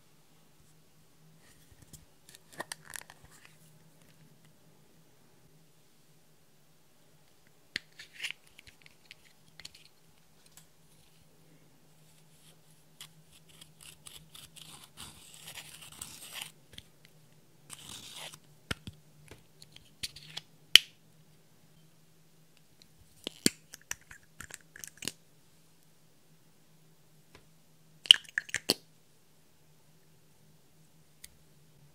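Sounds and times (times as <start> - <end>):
faint low hum: 0.0 - 31.9.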